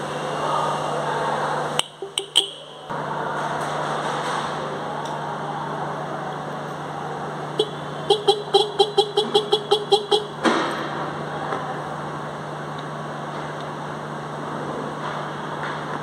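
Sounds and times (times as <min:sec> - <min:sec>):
car horn short beeps: 0:01.8 - 0:02.8, 0:07.6 - 0:10.4.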